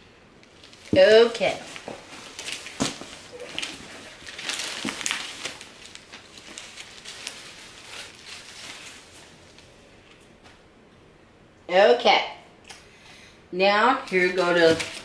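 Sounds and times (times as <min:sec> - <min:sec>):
tissue paper rustling and crinkling: 0:00.6 - 0:09.7, 0:14.1 - 0:15.0.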